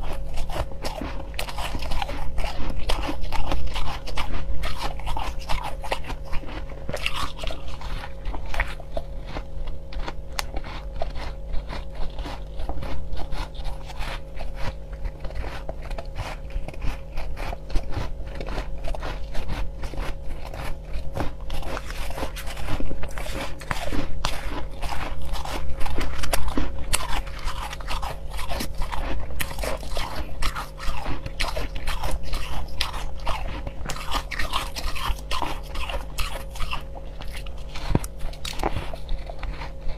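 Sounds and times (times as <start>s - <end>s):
crushed ice being chewed: 0.0s - 39.9s.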